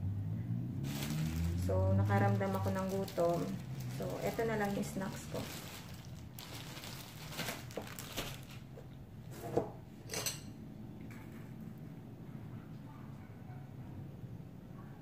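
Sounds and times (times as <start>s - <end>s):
plastic bag crinkling: 0.8s - 8.9s
cutlery clinking against plate: 10.0s - 10.6s.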